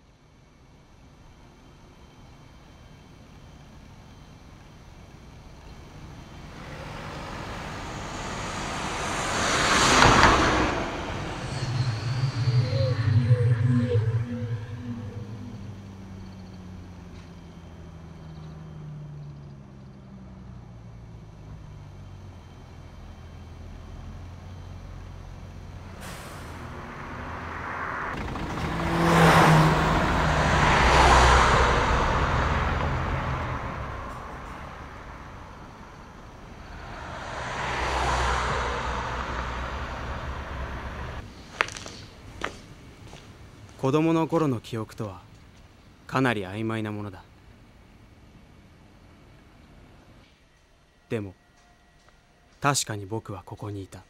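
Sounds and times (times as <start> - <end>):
bus engine: 0.0 - 51.0
car driving past: 5.8 - 43.2
low wavering tone: 11.1 - 17.3
air brakes hissing: 25.9 - 27.1.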